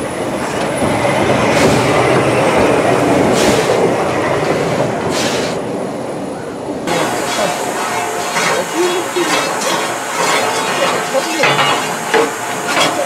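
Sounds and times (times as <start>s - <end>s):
steam locomotive hissing chuffs: 0.0s - 5.8s, 6.8s - 13.0s
wheels rumbling on rails: 0.0s - 13.0s.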